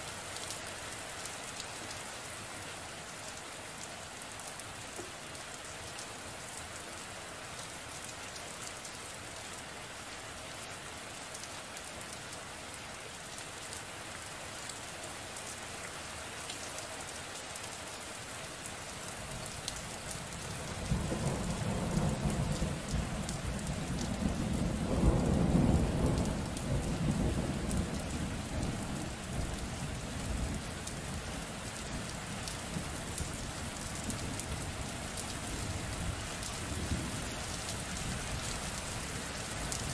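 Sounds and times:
steady rain: 0.0s - 39.9s
low rumble of thunder: 20.7s - 30.7s.

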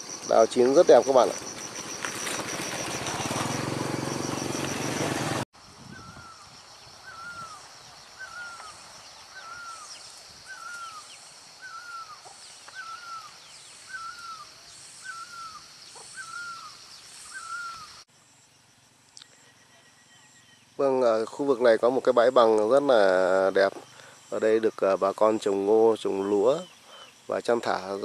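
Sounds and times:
faint bird chirps: 5.8s - 18.0s, 19.1s - 20.8s.

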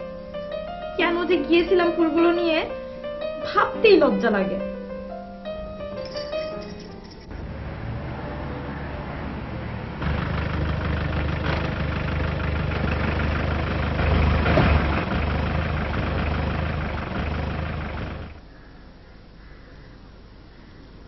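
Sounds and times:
suv engine idling: 9.8s - 18.4s.

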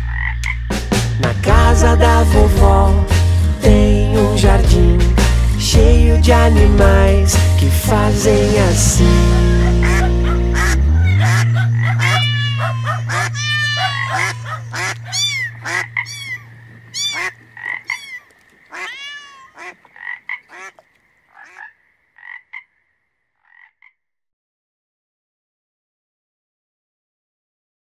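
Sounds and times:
cartoon frog croaks: 0.0s - 0.8s, 9.6s - 22.8s
cartoon cat meows: 11.0s - 16.4s, 18.8s - 19.6s.

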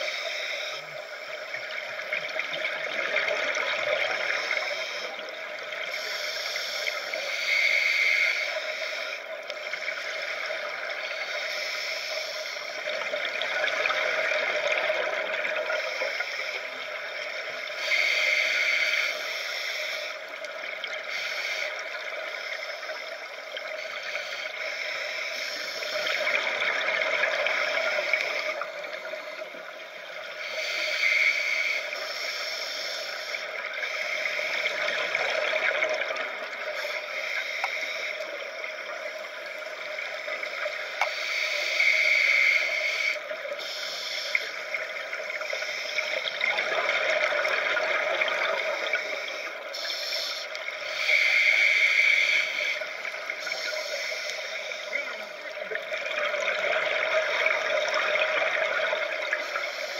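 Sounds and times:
underwater hiss: 0.0s - 59.9s
regulator bubbles gurgling: 12.8s - 18.7s, 25.8s - 31.3s, 33.5s - 44.0s, 44.6s - 59.9s.

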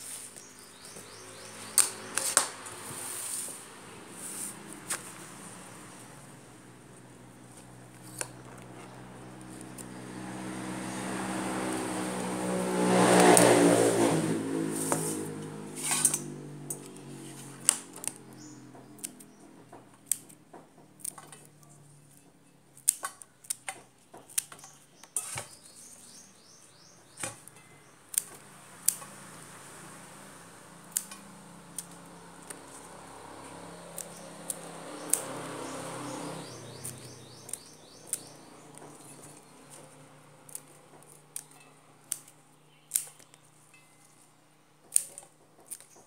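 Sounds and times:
passing vehicle engine hum: 0.1s - 19.8s, 28.4s - 42.0s
scissors snipping stems: 0.2s - 5.6s, 6.9s - 12.2s, 12.8s - 26.3s, 27.1s - 29.5s, 30.6s - 44.2s, 44.8s - 46.0s.

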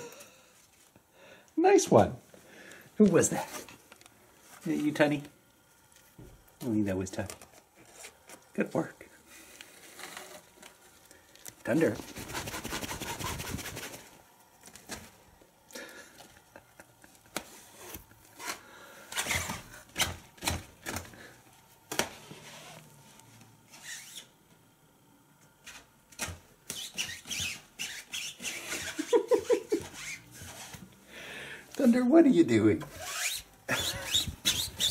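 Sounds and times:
cat claws scratching fabric: 11.7s - 14.1s, 26.7s - 30.8s, 32.9s - 34.9s.

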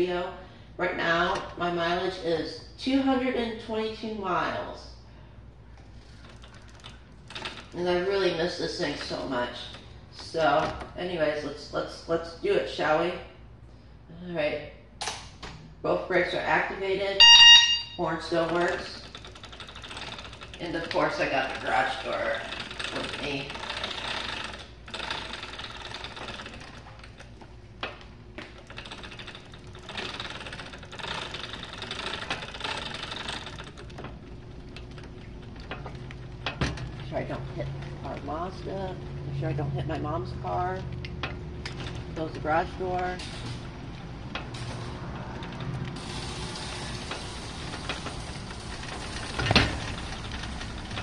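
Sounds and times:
garage door opener rattling: 5.9s - 11.2s, 17.2s - 51.0s.

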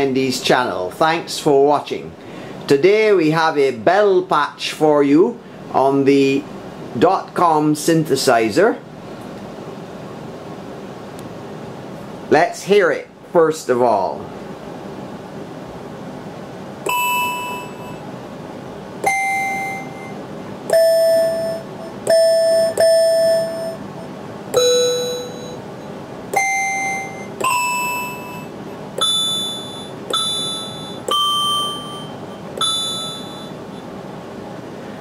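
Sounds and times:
synthesizer bell notes: 16.9s - 18.0s, 19.0s - 25.7s, 26.4s - 33.8s.

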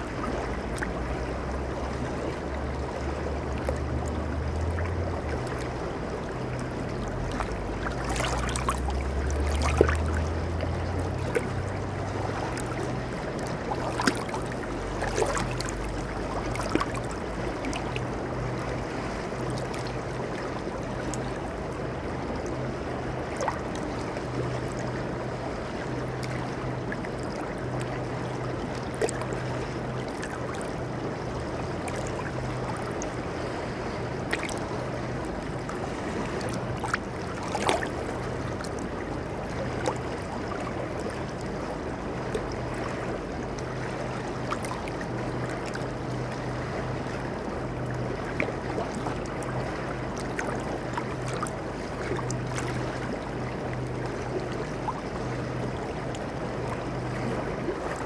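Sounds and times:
river water flowing over rocks: 0.0s - 18.7s, 25.6s - 47.2s
water splashes: 0.0s - 58.0s.

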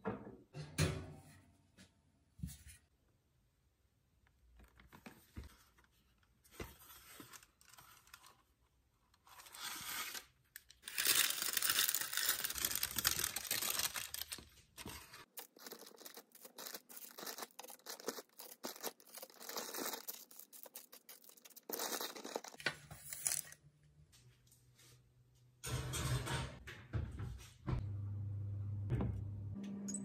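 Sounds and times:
baking paper ripping: 9.2s - 23.4s
paper rustling: 9.2s - 23.6s.

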